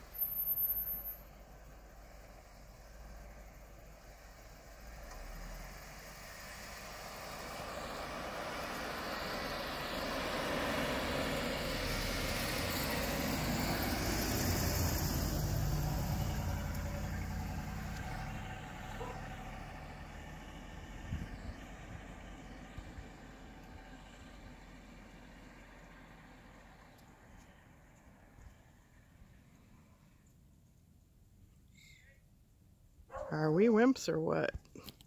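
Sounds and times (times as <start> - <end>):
tyres churning snow: 1.7 - 27.7.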